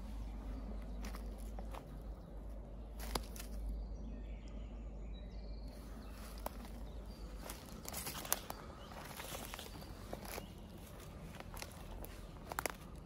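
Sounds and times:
footsteps through dry leaves: 0.0s - 2.1s, 3.0s - 3.7s, 5.7s - 13.0s
steady low rumble: 0.0s - 13.0s.

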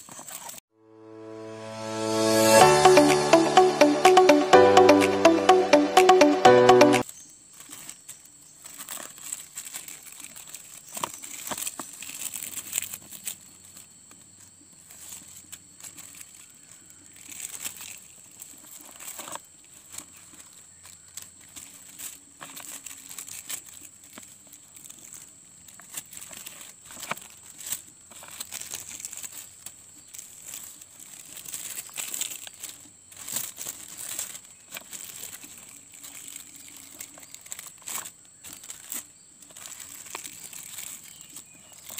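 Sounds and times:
plastic tape crinkling: 7.5s - 13.9s, 14.8s - 41.9s.

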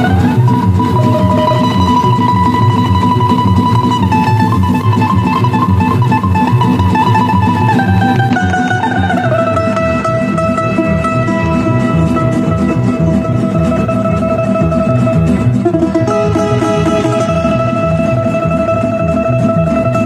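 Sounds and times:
high plucked string melody: 0.0s - 20.0s
plucked rhythmic accompaniment: 0.0s - 20.0s.

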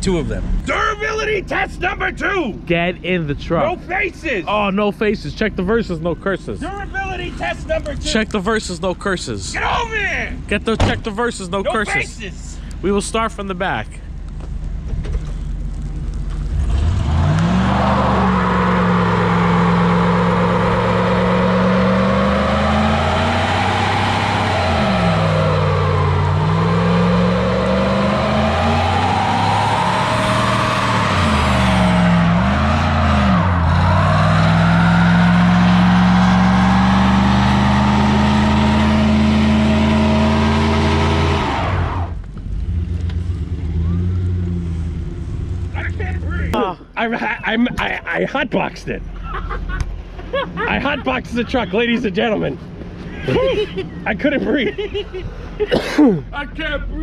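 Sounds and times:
truck engine revving hard: 16.4s - 46.3s.

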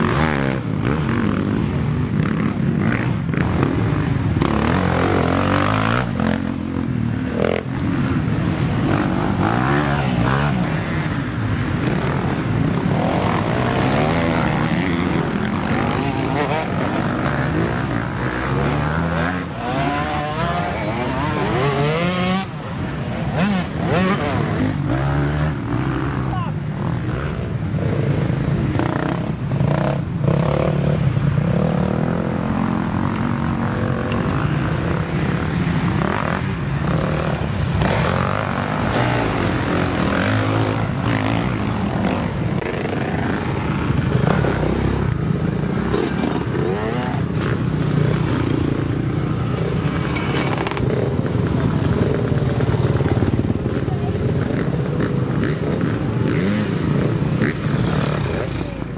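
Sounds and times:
dirt bikes revving and passing: 0.0s - 58.9s.

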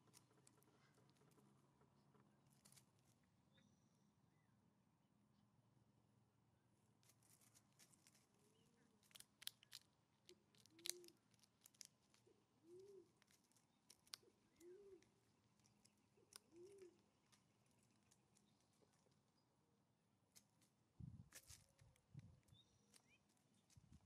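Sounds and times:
crunching in dry leaves: 2.5s - 3.0s, 7.0s - 19.2s, 20.3s - 21.9s
low soft cooing call: 10.3s - 11.2s, 12.2s - 13.2s, 14.1s - 15.2s, 16.2s - 17.0s.

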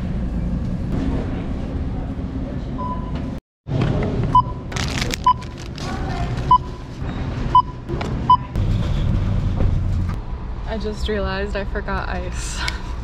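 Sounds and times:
bag and packaging rustling: 4.7s - 6.5s
barcode scanner beeping: 5.2s - 5.6s.

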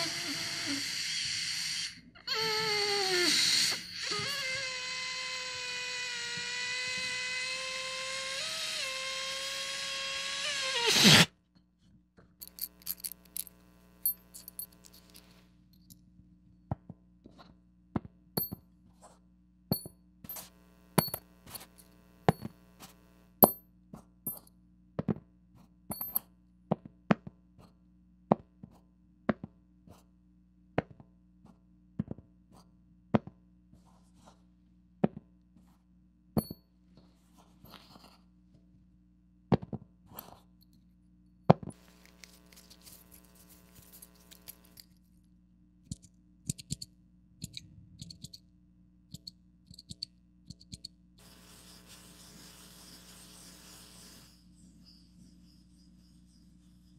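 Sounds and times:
balloon squealing: 0.0s - 11.3s
metal nails clinking together: 12.4s - 16.0s, 19.8s - 22.5s, 25.9s - 26.2s, 41.9s - 44.9s.

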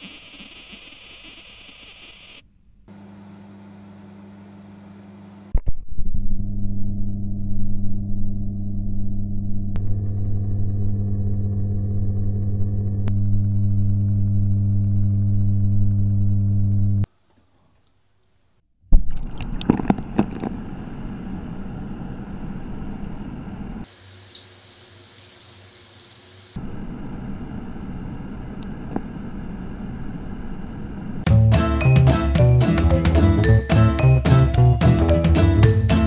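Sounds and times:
shower water rushing: 23.9s - 26.6s.

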